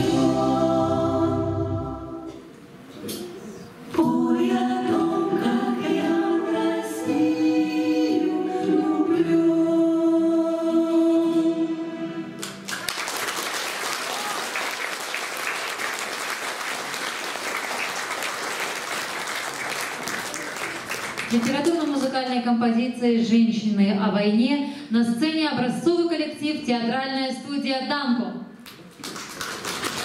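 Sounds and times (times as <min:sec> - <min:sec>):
choir singing: 0:00.0 - 0:02.4, 0:03.9 - 0:12.4
audience applause: 0:12.4 - 0:22.2, 0:28.8 - 0:30.0.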